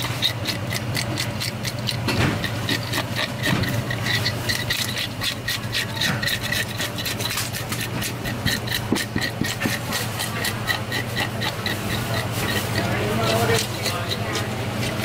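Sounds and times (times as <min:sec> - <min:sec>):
fish scaler scraping scales: 0:00.0 - 0:15.0
steady low hum: 0:00.0 - 0:15.0.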